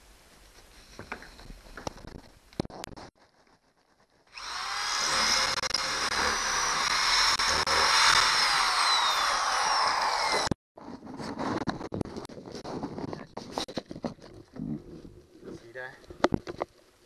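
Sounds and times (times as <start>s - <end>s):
power drill drilling: 4.3s - 10.6s.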